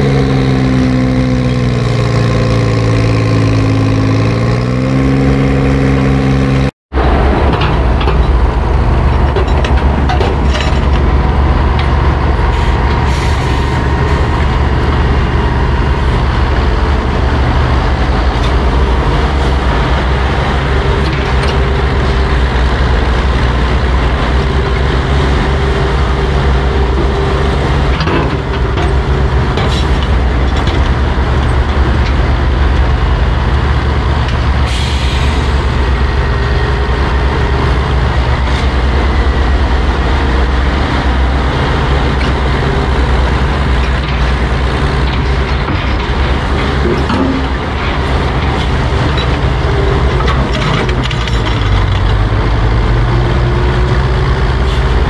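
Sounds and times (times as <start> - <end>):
power shovel engines under load: 0.0 - 55.0
metal clanks: 7.3 - 13.2, 43.7 - 52.3.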